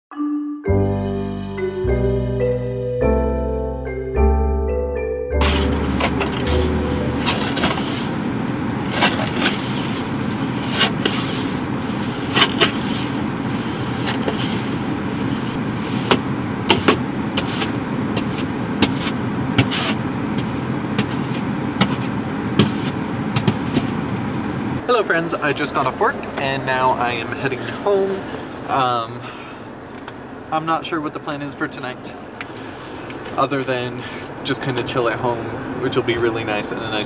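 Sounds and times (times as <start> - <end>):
car engine humming: 1.6 - 37.0
snow scraped off windshield: 5.4 - 8.2, 8.8 - 16.1.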